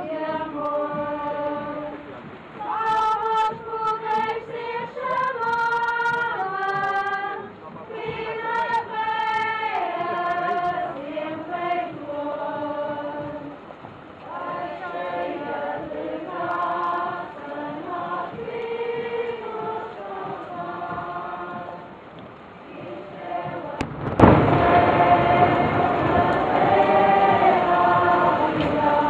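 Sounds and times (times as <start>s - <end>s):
group singing a hymn: 0.0s - 29.0s.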